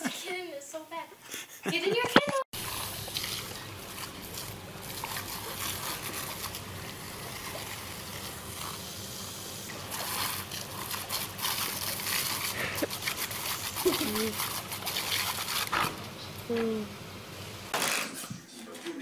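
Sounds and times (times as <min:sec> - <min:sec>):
hose water jetting and splattering: 0:02.5 - 0:16.8.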